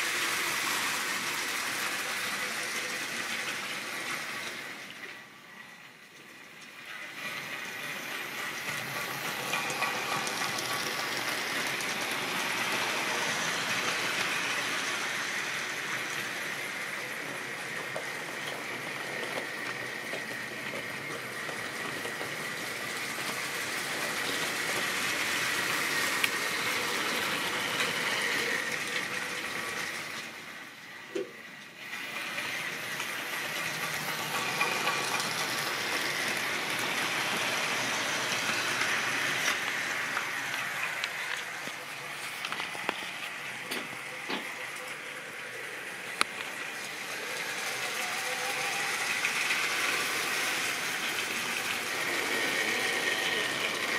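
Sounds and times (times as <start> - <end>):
model trains rolling: 0.0 - 53.9.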